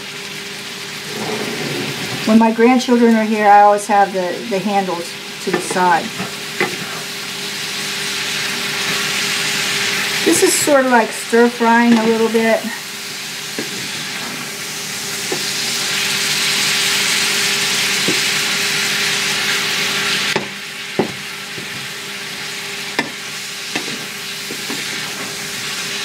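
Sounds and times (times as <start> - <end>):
food sizzling in a skillet: 0.0 - 26.0
wooden spatula knocking pan: 20.4 - 21.9.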